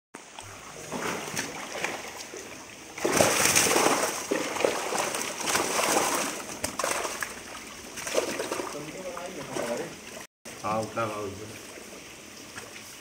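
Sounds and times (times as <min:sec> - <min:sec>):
fish splashing in a net: 0:00.7 - 0:10.2.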